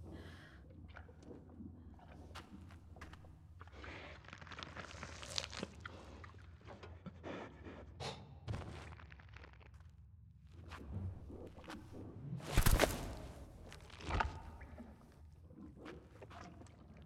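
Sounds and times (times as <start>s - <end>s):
crunches and knocks: 12.4s - 14.8s.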